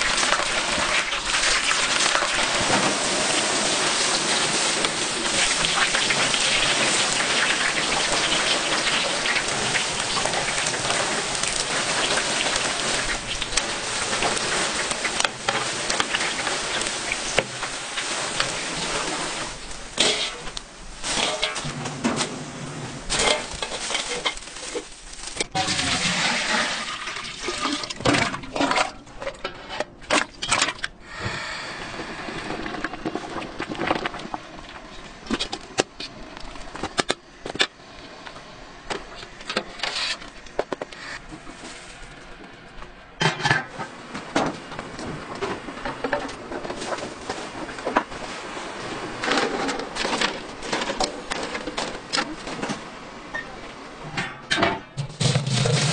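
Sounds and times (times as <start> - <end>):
food frying in hot oil: 0.0 - 21.7, 23.1 - 28.0
water splashing: 0.0 - 21.8
wire skimmer scraping metal pot: 5.7 - 30.9, 54.8 - 55.9.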